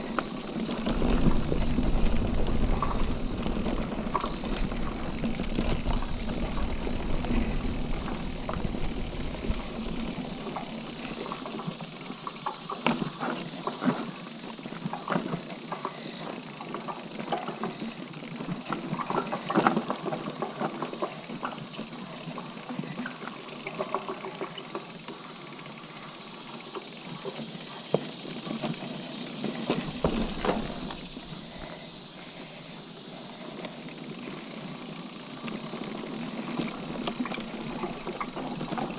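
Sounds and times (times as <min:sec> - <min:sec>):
wind rumble on microphone: 0:00.0 - 0:10.6
bike rattling over roots: 0:00.0 - 0:38.9
bike tyres on packed dirt: 0:00.0 - 0:38.9.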